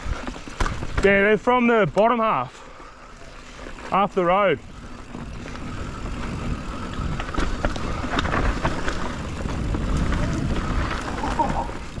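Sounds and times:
tyres rumbling on dirt: 0.0 - 12.0
bike clattering knocks: 0.2 - 2.2
wind buffeting microphone: 4.6 - 12.0.

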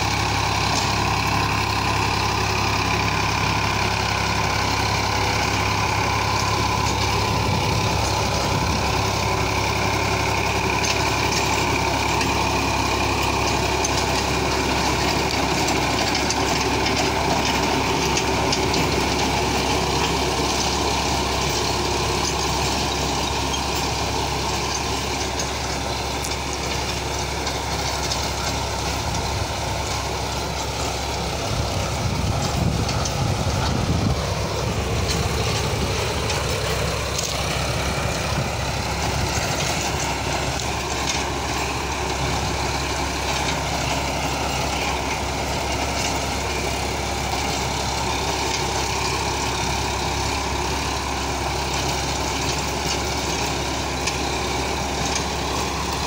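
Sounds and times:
tiller churning soil: 0.0 - 56.0
tractor diesel engine running: 0.0 - 56.0
low rumble: 31.1 - 40.7.

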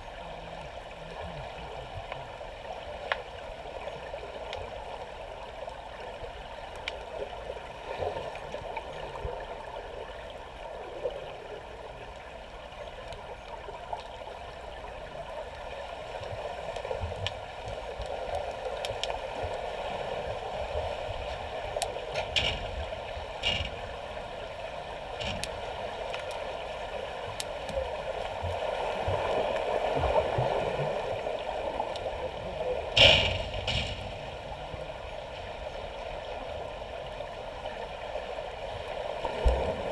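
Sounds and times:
muffled underwater water rush: 0.0 - 39.9
underwater clicks and knocks: 21.2 - 24.0, 25.1 - 26.4, 32.9 - 34.9.

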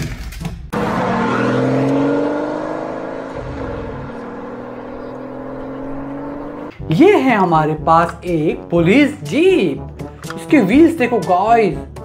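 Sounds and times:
car engine revving: 0.7 - 6.8.

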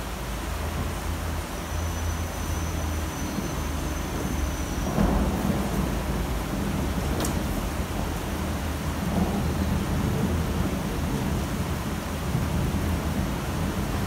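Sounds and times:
low city rumble: 0.0 - 14.0
rain hissing: 0.0 - 14.0.

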